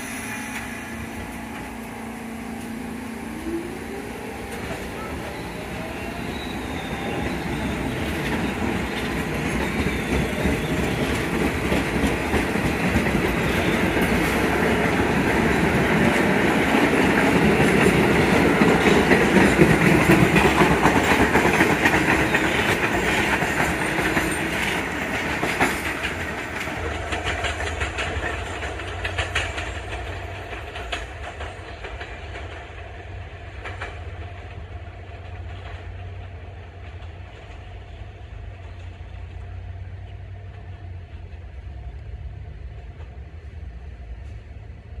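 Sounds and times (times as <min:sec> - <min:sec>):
subway train passing: 0:00.0 - 0:45.0
wheels clicking over rail joints: 0:06.8 - 0:41.5.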